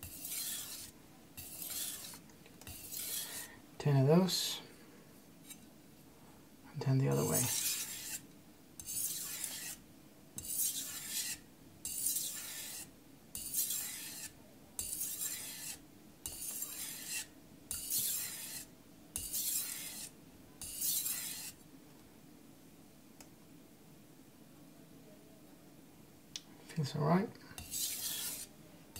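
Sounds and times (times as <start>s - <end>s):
knife scraping on whetstone: 0.0s - 3.5s, 7.1s - 8.2s, 8.8s - 9.8s, 10.4s - 21.6s, 27.6s - 28.5s.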